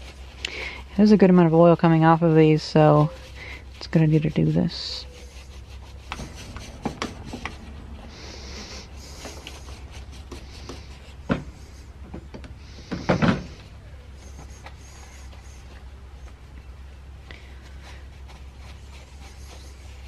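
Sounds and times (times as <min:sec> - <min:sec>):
paper towel rustling: 0:00.0 - 0:12.0, 0:13.6 - 0:20.0
parts and tools tapping on workbench: 0:11.3 - 0:13.5.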